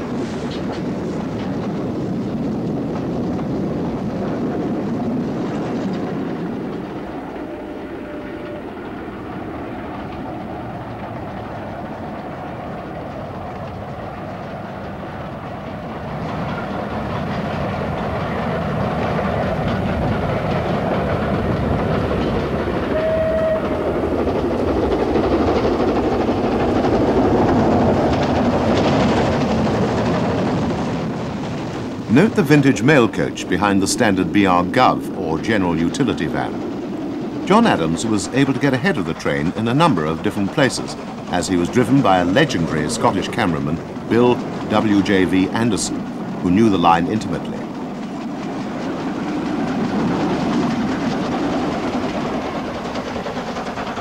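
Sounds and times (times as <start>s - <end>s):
wheel and rail noise: 0.0s - 54.0s
steam locomotive exhaust: 20.7s - 28.6s
steam whistle: 22.9s - 24.0s.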